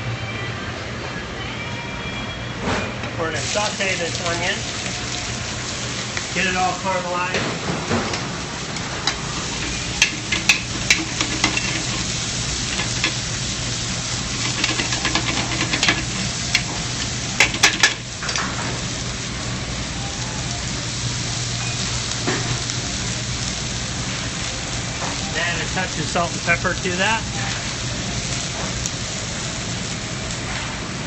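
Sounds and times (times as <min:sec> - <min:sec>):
onions sizzling in pan: 0:03.2 - 0:31.0
metal tongs clacking against pan: 0:09.0 - 0:12.0, 0:12.7 - 0:13.2, 0:14.4 - 0:16.7, 0:17.4 - 0:18.5.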